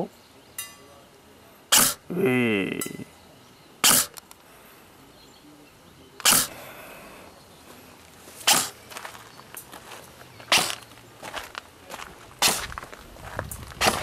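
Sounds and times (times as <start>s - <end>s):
airsoft gun shots: 1.7s - 2.0s, 3.8s - 4.2s, 6.2s - 6.6s, 8.5s - 8.8s, 10.5s - 10.8s.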